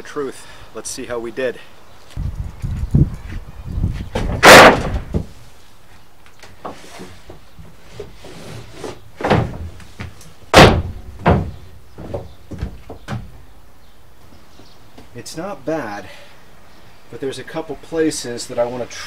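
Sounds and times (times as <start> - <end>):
plywood sheet slamming on floor: 4.1 - 5.4, 10.5 - 11.6
heavy footsteps on plywood: 9.2 - 13.5.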